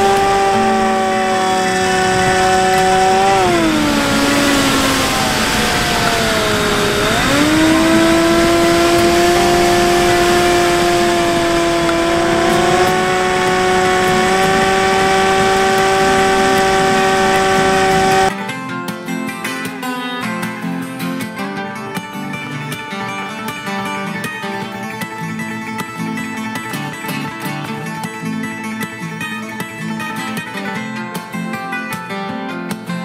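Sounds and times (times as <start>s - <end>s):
electric motor and propeller whine: 0.0s - 18.3s
wind rushing past microphone: 0.0s - 18.3s.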